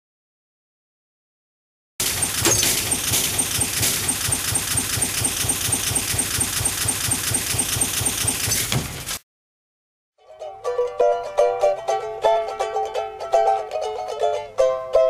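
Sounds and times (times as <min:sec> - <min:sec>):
fast ticking pulse: 0:02.0 - 0:08.4.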